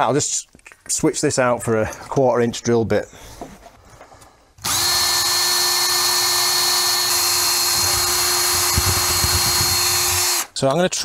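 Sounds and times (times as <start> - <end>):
power drill drilling: 4.6 - 10.6.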